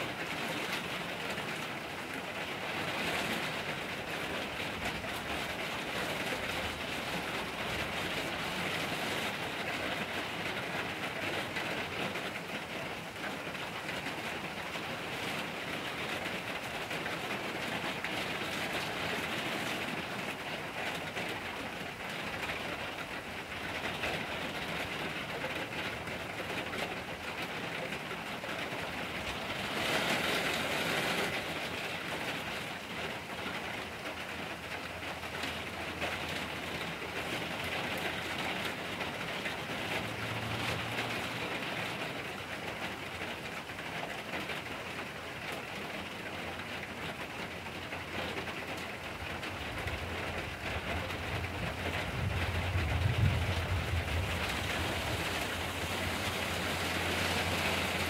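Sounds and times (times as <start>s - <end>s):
rain falling on forest: 0.0s - 58.0s
low rumble: 51.7s - 55.6s.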